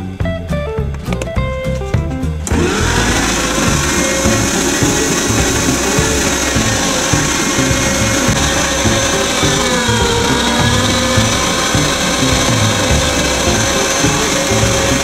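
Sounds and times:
electric meat grinder motor running: 0:02.5 - 0:15.0.

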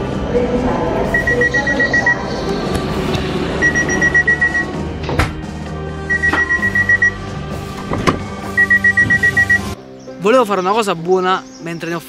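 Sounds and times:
train door warning beeps: 0:01.1 - 0:02.3, 0:03.6 - 0:04.8, 0:06.1 - 0:07.2, 0:08.5 - 0:09.8.

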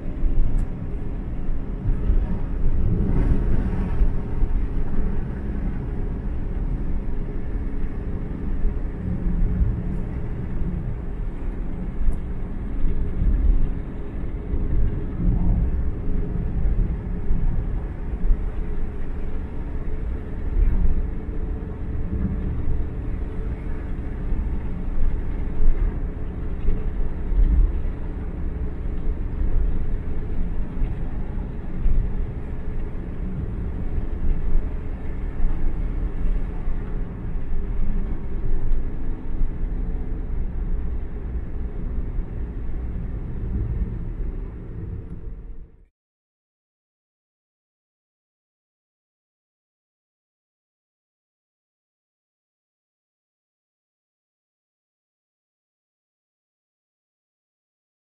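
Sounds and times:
car engine and tyres rumbling: 0:00.0 - 0:45.9.

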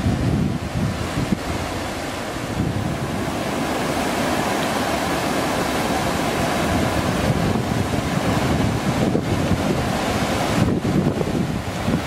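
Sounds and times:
water rushing over rocks: 0:00.0 - 0:12.0.

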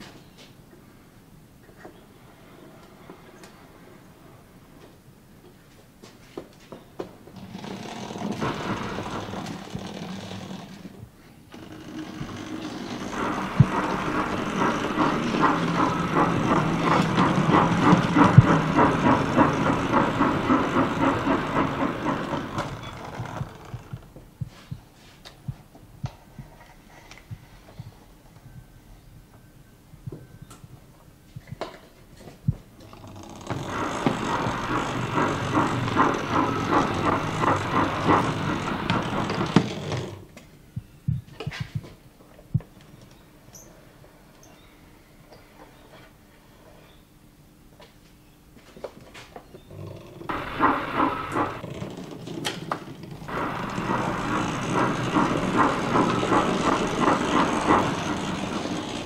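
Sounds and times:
model locomotive motor whirring: 0:07.4 - 0:24.0, 0:32.8 - 0:40.3, 0:50.2 - 0:59.0.

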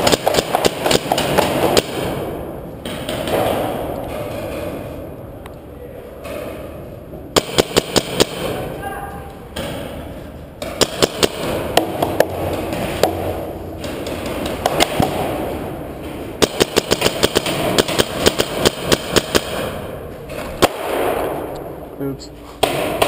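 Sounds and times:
paintball markers firing: 0:00.0 - 0:02.2, 0:07.4 - 0:08.6, 0:10.6 - 0:21.7.

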